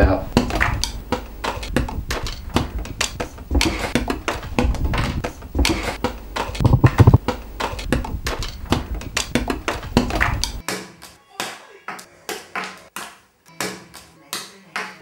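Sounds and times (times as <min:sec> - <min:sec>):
heavier thumps: 0:06.6 - 0:07.2.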